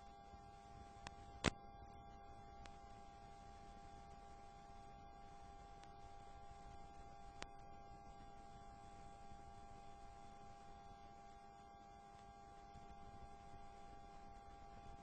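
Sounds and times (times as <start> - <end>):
faint electrical hum and hiss: 0.0 - 15.0.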